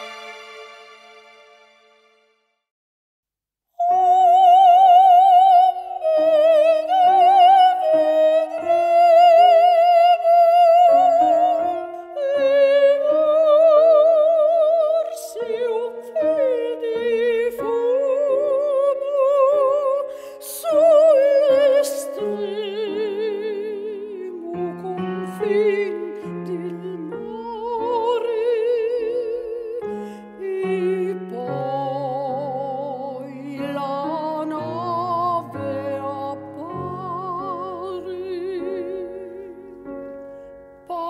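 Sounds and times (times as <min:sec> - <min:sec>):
sustained instrumental accompaniment: 0:00.0 - 0:02.6.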